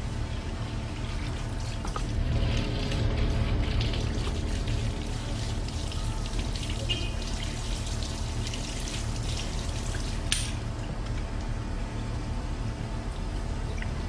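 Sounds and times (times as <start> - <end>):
hose water splashing: 0.6 - 10.4.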